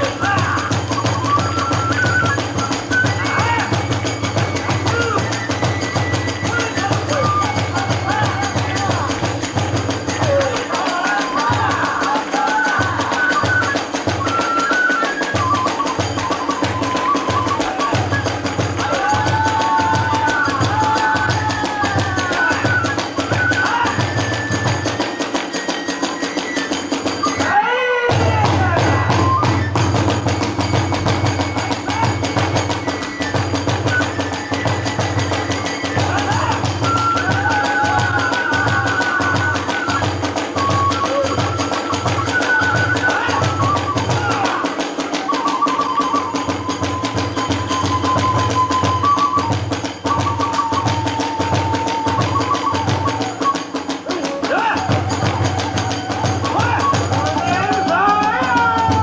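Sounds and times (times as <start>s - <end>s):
bamboo flute melody: 0.0s - 59.0s
big drum beating: 54.4s - 59.0s.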